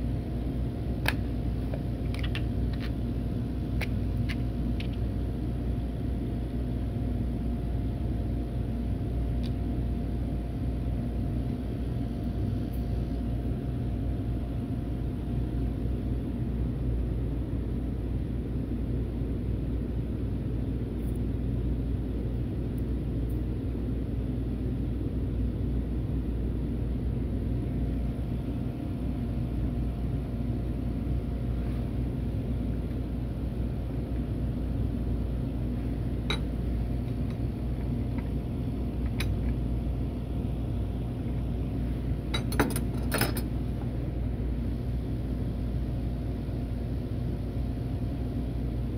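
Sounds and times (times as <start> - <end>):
workshop machinery rumbling: 35.6 - 44.4.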